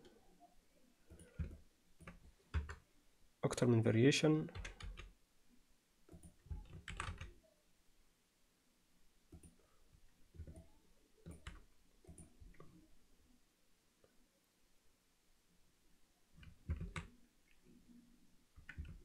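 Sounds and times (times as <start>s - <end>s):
keyboard and mouse clicks: 1.1s - 2.8s, 6.1s - 7.4s, 9.3s - 9.6s, 10.3s - 12.8s, 16.4s - 17.7s, 18.6s - 19.0s.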